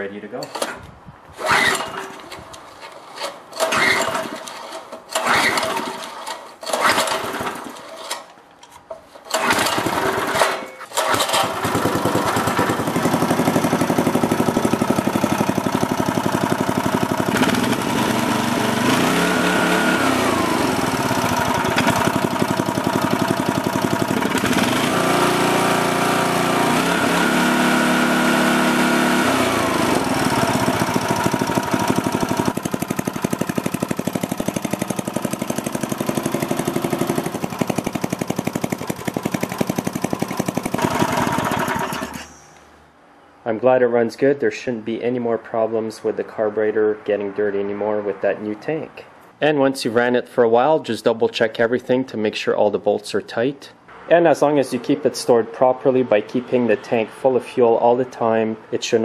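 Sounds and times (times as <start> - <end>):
small engine running and revving: 11.4 - 42.2.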